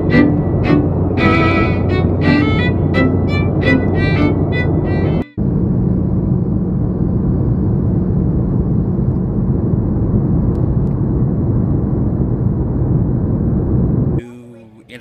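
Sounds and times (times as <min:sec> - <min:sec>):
airliner cabin drone: 0:00.0 - 0:14.2.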